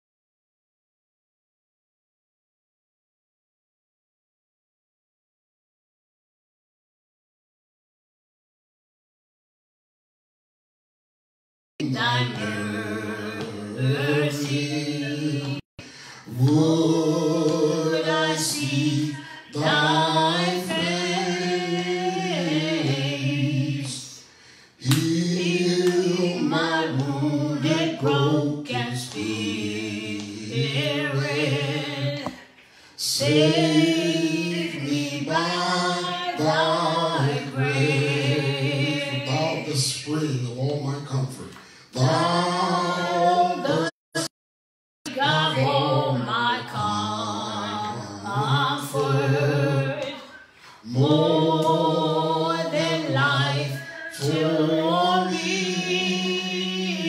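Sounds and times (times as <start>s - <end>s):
man singing unaccompanied: 50.9s - 57.0s.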